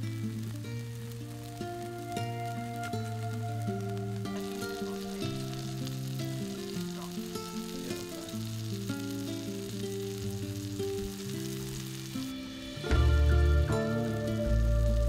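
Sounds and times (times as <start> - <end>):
background music: 0.0 - 10.2, 10.8 - 15.0
fish sizzling in hot oil: 0.0 - 15.0
deep bass: 12.8 - 15.0.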